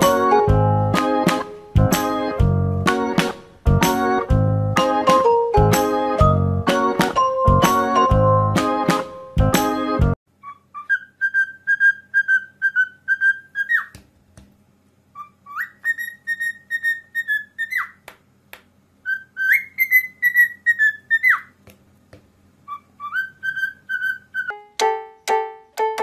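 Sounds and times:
cockatiel whistling: 10.4 - 14.0, 15.1 - 18.0, 19.0 - 21.5, 22.7 - 24.6.

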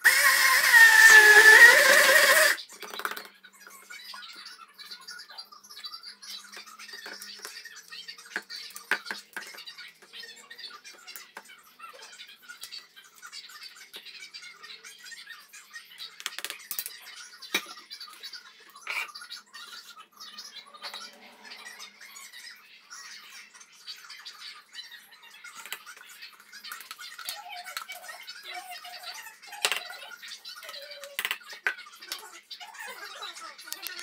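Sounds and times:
spatula scraping plastic beaker: 0.1 - 2.6.

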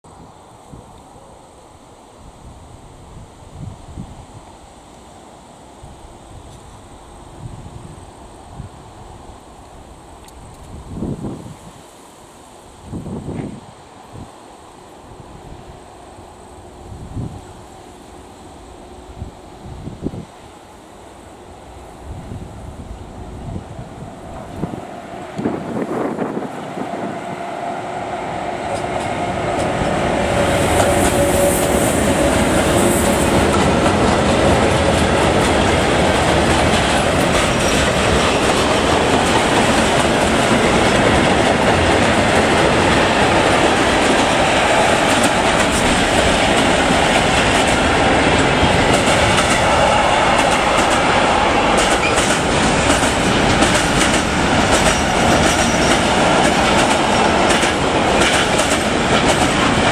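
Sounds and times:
electric locomotive passing: 0.1 - 59.9
freight train rumbling past: 12.5 - 59.9
wheels clattering on rails: 28.7 - 59.9.

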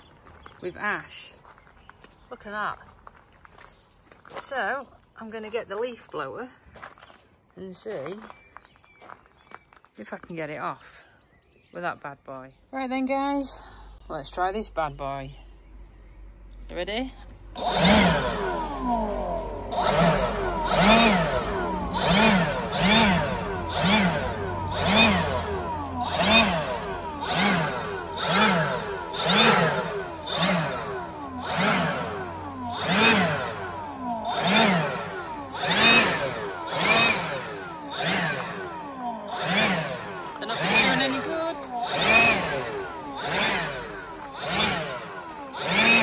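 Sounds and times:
leaf blower whining: 17.3 - 46.0.

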